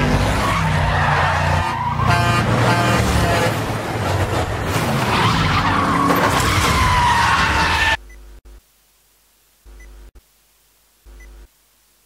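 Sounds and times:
tyres skidding and squealing: 0.0 - 8.0
truck and car engines: 0.0 - 8.1.

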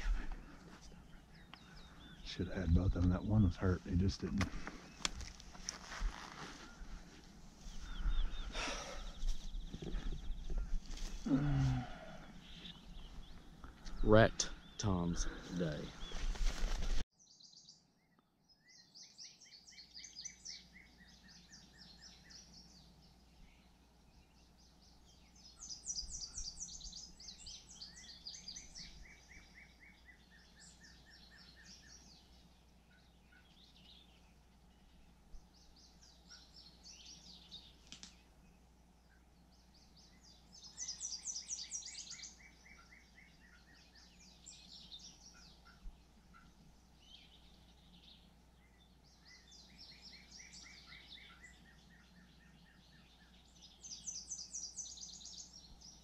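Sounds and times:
songbirds trilling: 0.0 - 56.0.

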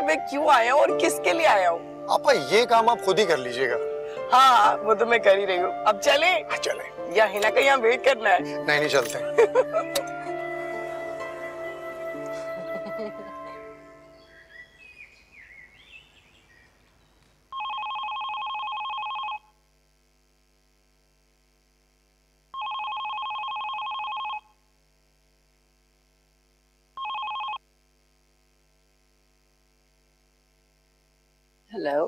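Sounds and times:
electronic telephone ringing: 17.5 - 19.5, 22.6 - 24.6, 27.0 - 27.6.

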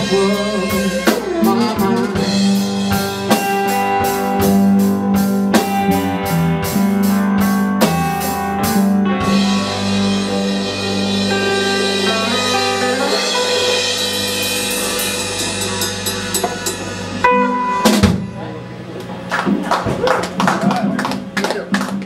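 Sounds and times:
guitar chords ringing: 0.0 - 19.3
drum kit: 0.0 - 22.0
live band music: 0.0 - 22.0.

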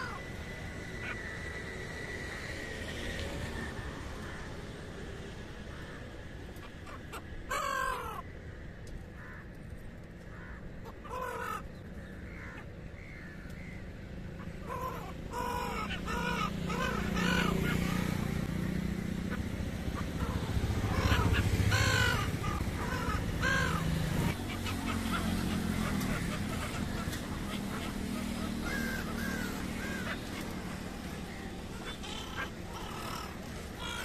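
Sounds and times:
gulls calling harshly: 0.0 - 2.4, 10.3 - 13.8, 14.4 - 34.0.

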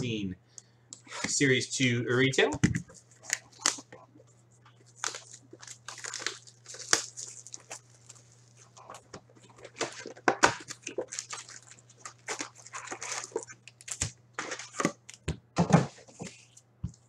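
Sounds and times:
foil packs crinkling: 3.0 - 4.0, 4.8 - 15.2.

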